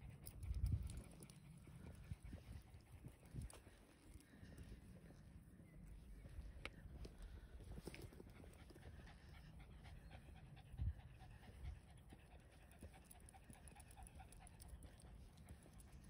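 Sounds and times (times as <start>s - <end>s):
dog panting: 7.8s - 16.0s.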